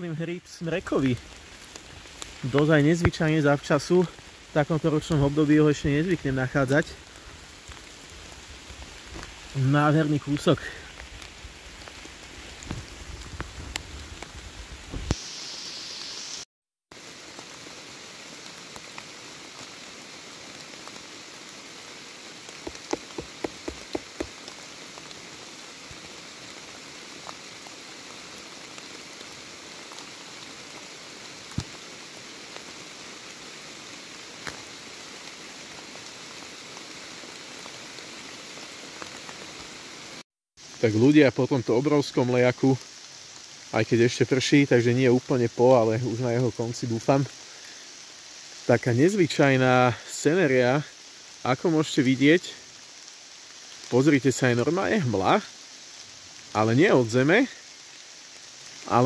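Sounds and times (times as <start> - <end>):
steady rain falling: 0.0 - 59.0
sharp taps: 22.6 - 24.3.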